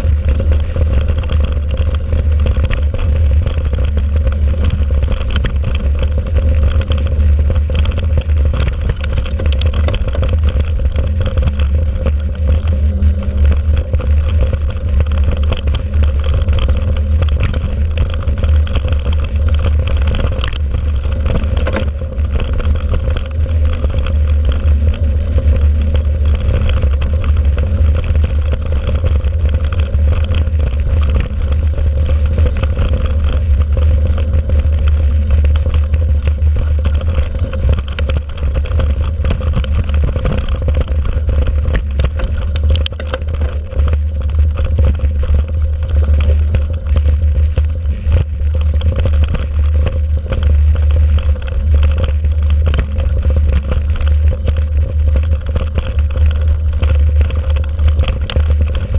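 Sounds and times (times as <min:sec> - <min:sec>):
bicycle tyre noise on dirt: 0:00.0 - 0:58.9
bike rattling: 0:00.0 - 0:58.9
wind rumbling on microphone: 0:00.0 - 0:58.9.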